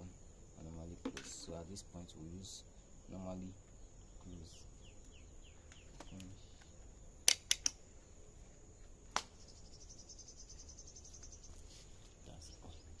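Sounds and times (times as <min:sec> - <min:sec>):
insects trilling: 0:00.0 - 0:13.0
sharp clicks: 0:05.0 - 0:07.8.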